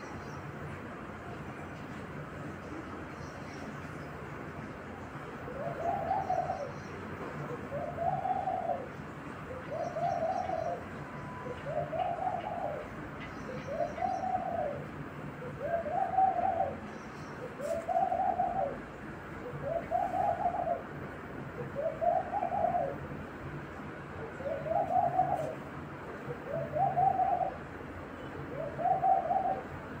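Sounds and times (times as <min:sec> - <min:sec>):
dove cooing: 0:05.5 - 0:23.2, 0:24.2 - 0:27.7, 0:28.4 - 0:30.0.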